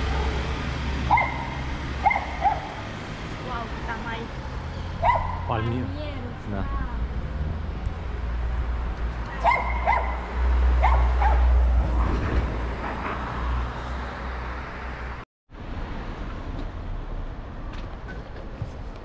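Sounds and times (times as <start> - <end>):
street noise rumble: 0.0 - 19.0
dog barking: 1.1 - 2.8, 5.0 - 5.6, 9.3 - 11.6.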